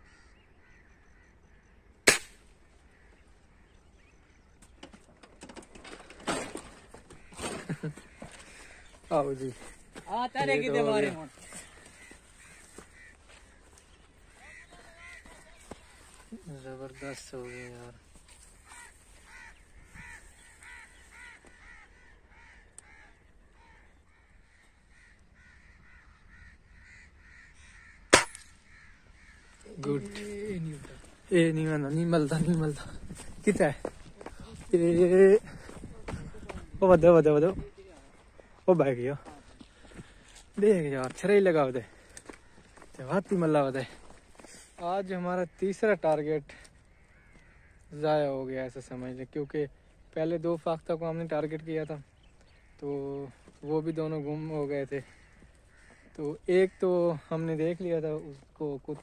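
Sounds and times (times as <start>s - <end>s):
faint bird calls: 0.0s - 36.8s, 37.5s - 50.2s, 51.4s - 59.0s
crows cawing faintly: 0.0s - 59.0s
airgun shot: 2.0s - 2.5s, 28.1s - 28.6s.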